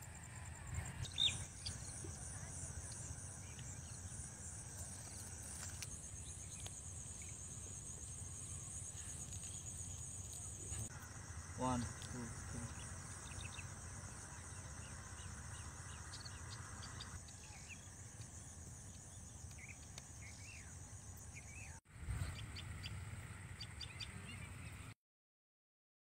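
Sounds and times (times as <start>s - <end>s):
small birds chirping: 0.8s - 23.0s
high insect buzz: 1.1s - 21.4s.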